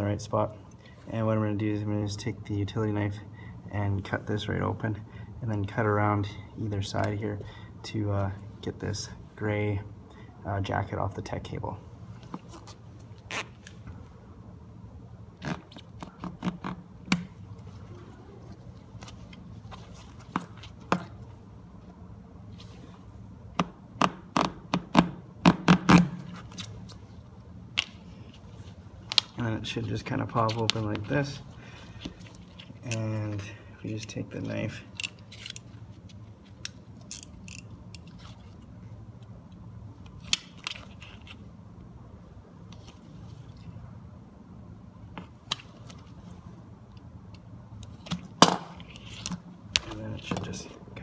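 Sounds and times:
steady low hum: 0.0 - 51.0.

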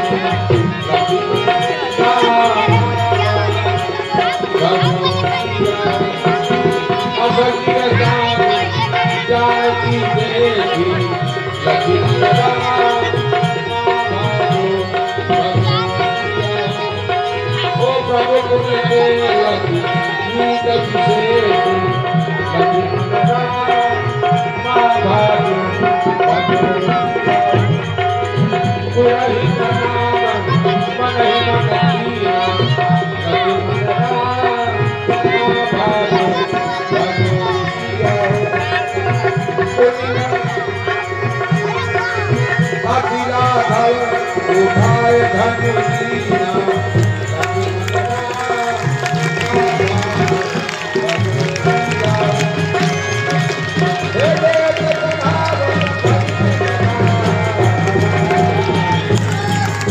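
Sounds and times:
sustained keyboard melody: 0.0 - 59.9
tabla playing a steady rhythm: 0.0 - 59.9.

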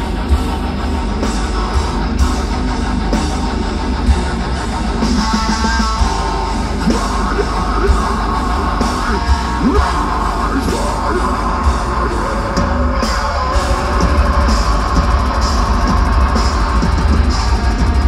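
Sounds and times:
bass guitar: 0.0 - 18.0
distorted guitars: 0.0 - 18.0
drums: 0.0 - 18.0
screamed vocals: 6.9 - 15.2.

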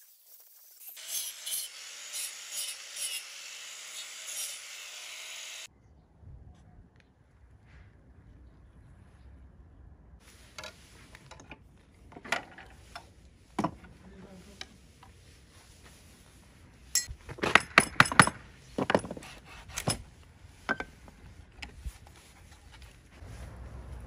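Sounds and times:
hand tools clinking: 16.9 - 19.2.

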